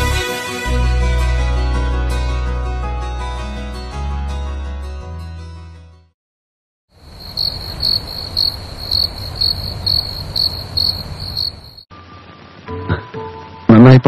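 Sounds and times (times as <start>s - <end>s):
song music: 0.0s - 5.2s
crickets chirping: 7.0s - 11.9s.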